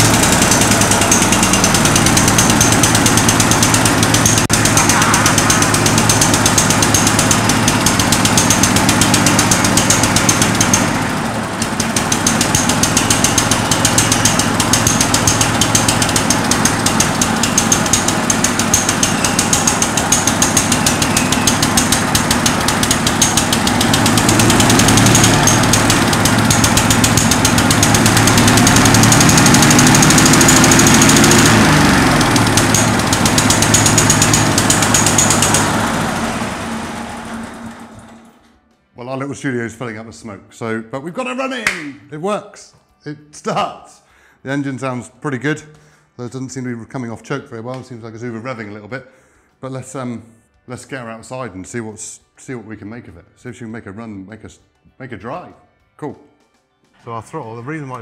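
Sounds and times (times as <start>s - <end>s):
lawn tractor engine running rough: 0.0s - 38.7s.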